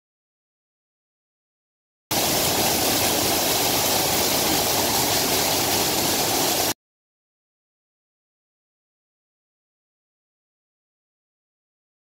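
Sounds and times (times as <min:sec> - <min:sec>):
waterfall rushing: 0:02.1 - 0:06.8.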